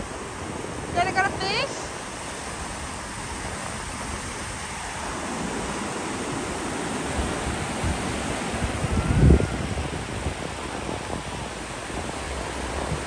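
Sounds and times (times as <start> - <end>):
ocean waves breaking: 0.0 - 13.0.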